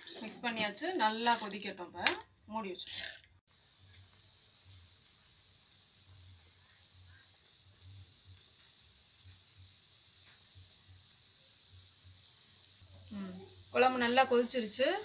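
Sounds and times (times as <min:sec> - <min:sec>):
gravy boiling in a pan: 0:02.8 - 0:15.0.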